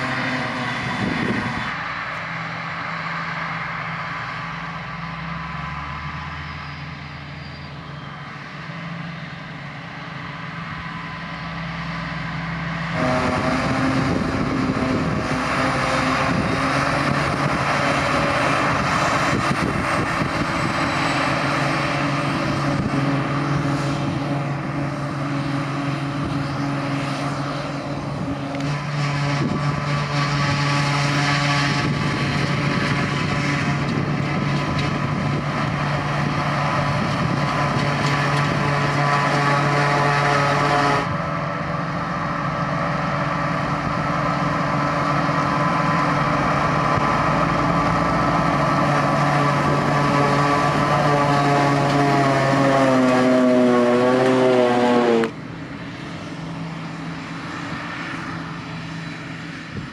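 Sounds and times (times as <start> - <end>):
tractor running: 0.0 - 59.9
forage harvester chopping grass: 12.7 - 56.3.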